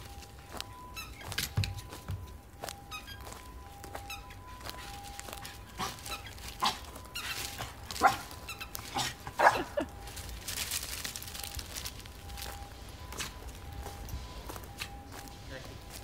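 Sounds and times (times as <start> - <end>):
dog barking: 8.0 - 9.8.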